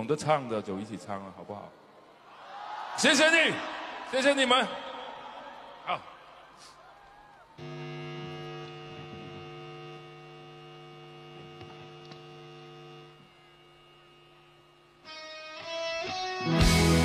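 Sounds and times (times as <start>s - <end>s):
live rock band: 15.1s - 17.0s
drums: 16.3s - 17.0s.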